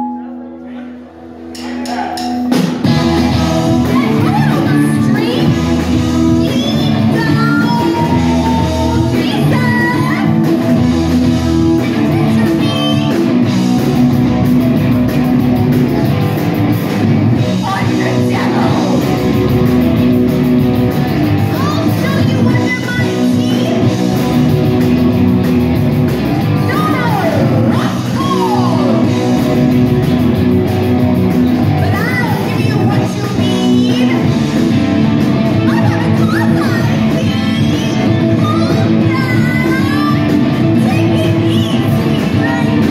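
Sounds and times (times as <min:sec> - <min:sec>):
drums: 0:00.0 - 0:42.9
electric guitar: 0:01.0 - 0:42.9
person singing through loudspeakers: 0:17.7 - 0:19.0, 0:35.7 - 0:42.9.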